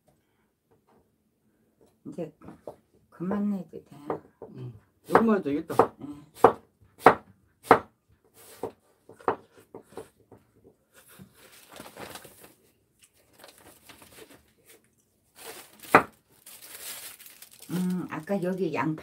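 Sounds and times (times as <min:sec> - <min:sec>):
knife chopping on wooden board: 0:05.1 - 0:07.9
soft rustling: 0:11.0 - 0:18.6.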